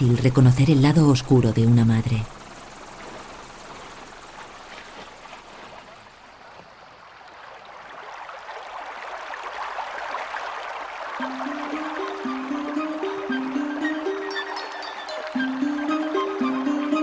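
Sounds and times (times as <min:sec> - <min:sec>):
rushing churning water: 0:00.0 - 0:17.0
steady music notes: 0:11.2 - 0:17.0.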